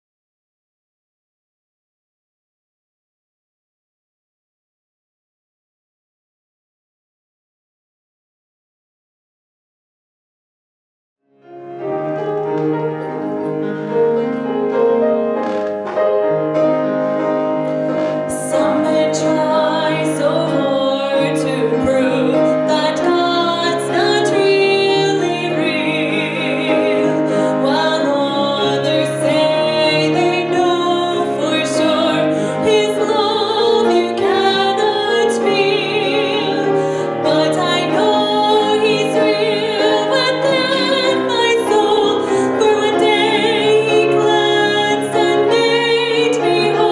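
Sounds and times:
piano playing: 11.3s - 46.9s
woman singing with vibrato: 18.0s - 46.9s.

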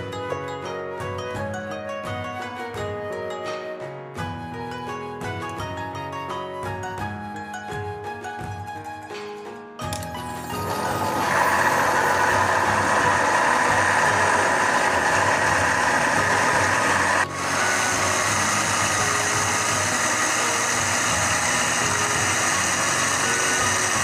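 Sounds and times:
blender motor whirring: 10.0s - 24.0s.

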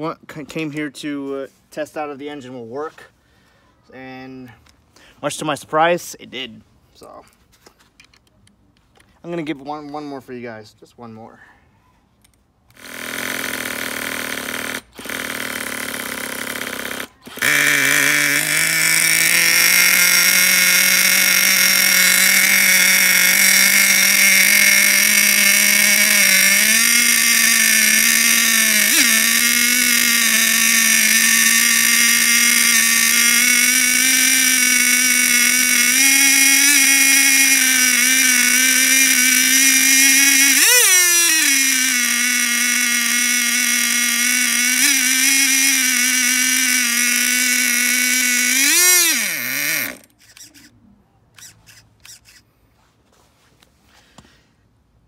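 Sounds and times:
cordless drill spinning: 12.2s - 52.5s
small engine running at fast idle: 12.7s - 50.7s, 51.4s - 52.4s.

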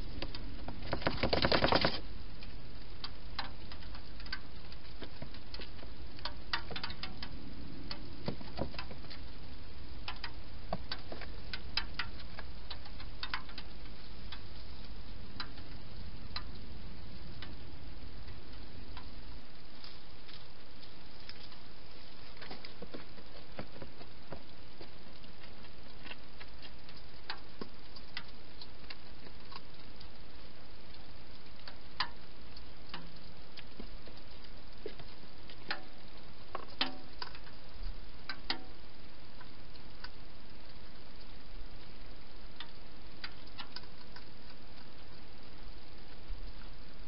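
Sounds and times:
low rumble: 0.0s - 1.3s, 2.0s - 29.2s.

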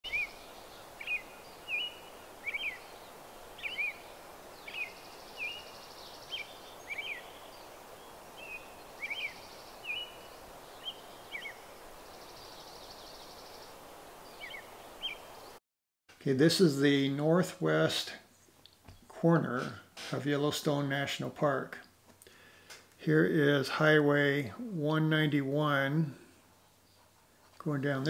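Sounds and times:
birds chirping: 0.0s - 15.6s
faint steady hiss: 0.1s - 28.0s.

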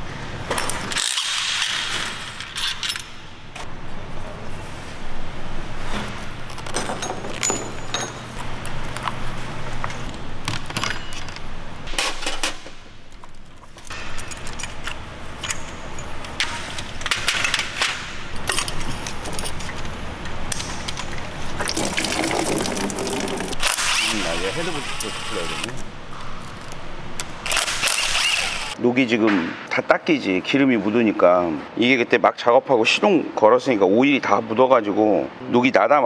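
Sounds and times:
hand tools clicking and clinking: 0.5s - 3.2s, 6.5s - 9.2s, 9.8s - 21.6s
steady low hum: 2.1s - 28.8s.

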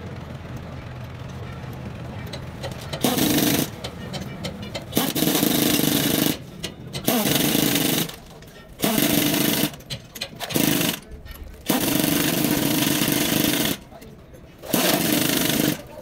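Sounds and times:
hammering power tool bursts: 2.6s - 14.0s, 14.6s - 16.0s.

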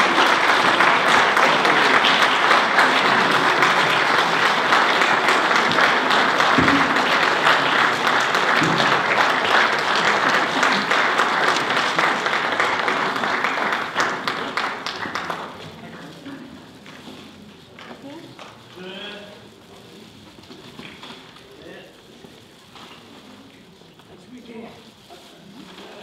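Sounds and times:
audience applauding: 0.0s - 16.4s.

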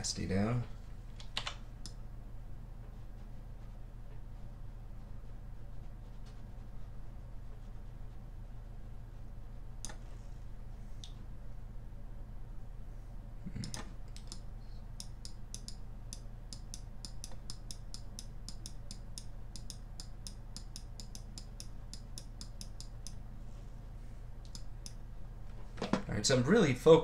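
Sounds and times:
steady low hum: 0.0s - 27.0s
computer mouse clicking: 13.6s - 14.4s, 15.0s - 23.2s, 24.4s - 25.0s.

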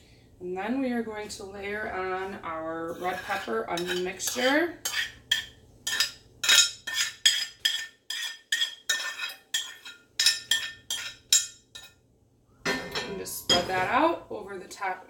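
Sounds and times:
metal spoon tapping skillet: 3.3s - 12.0s.

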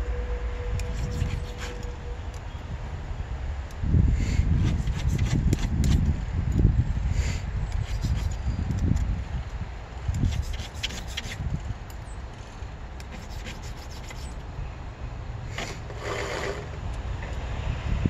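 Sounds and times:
steady low rumble: 0.0s - 16.0s
file scraping on steel: 0.8s - 1.9s, 4.4s - 6.0s, 7.7s - 8.4s, 10.2s - 11.4s, 13.0s - 14.4s, 15.5s - 16.8s.

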